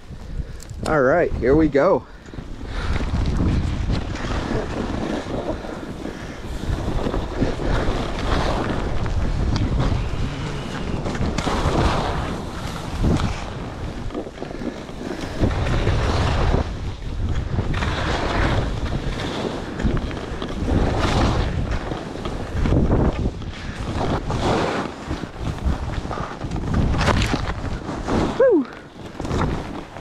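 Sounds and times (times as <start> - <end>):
wind rushing over microphone: 0.0 - 30.0
skis hissing on snow: 4.5 - 13.6.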